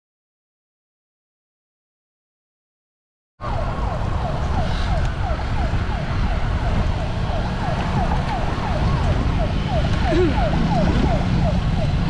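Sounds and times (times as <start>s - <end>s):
siren chirping: 3.4s - 12.0s
wind buffeting microphone: 3.4s - 12.0s.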